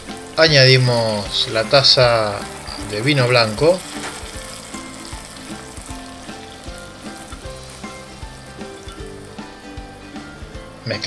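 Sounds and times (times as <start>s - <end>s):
mushrooms sizzling in a pot: 0.0s - 11.0s
wooden spoon stirring: 1.0s - 9.4s.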